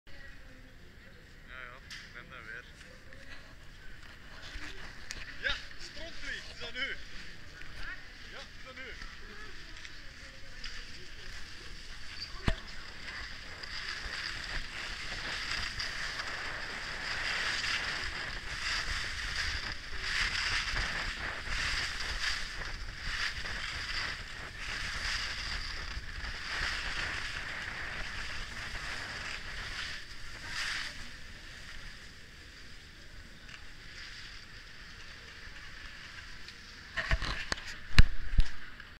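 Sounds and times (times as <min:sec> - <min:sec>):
skis scraping on snow: 0:02.7 - 0:38.3.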